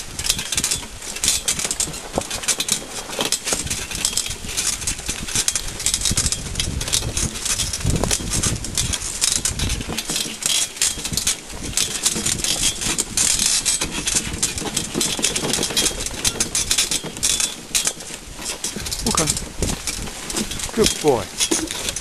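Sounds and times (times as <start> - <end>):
carriage rattling and jolting: 0.0 - 22.0
clicks and knocks: 0.3 - 22.0.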